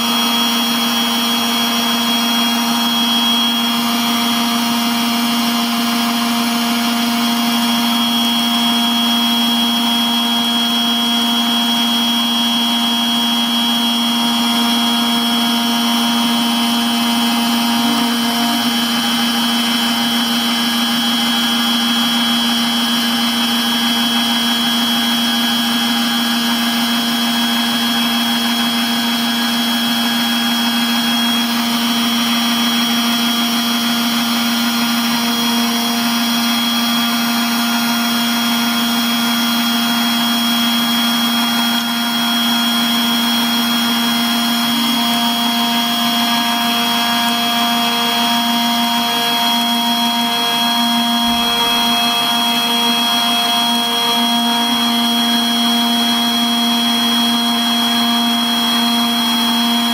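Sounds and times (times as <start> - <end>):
milling spindle hum and whine: 0.0 - 59.9.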